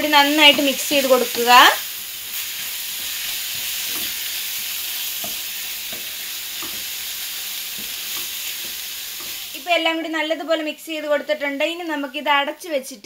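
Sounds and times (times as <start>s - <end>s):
meat sizzling in a frying pan: 0.0s - 12.4s
wooden spatula scraping: 0.2s - 9.6s.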